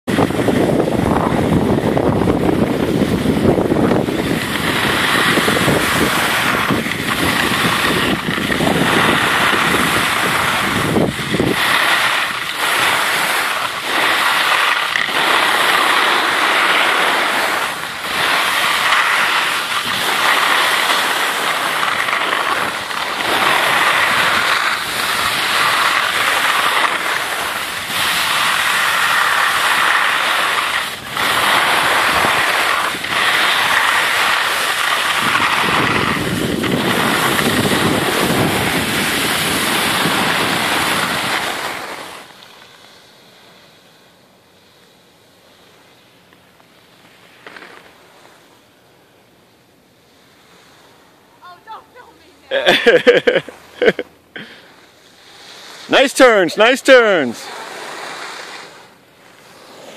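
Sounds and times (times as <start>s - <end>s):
wind on microphone: 0.1s - 41.9s
skis scraping over snow: 0.1s - 43.8s, 47.0s - 48.7s, 50.1s - 59.9s.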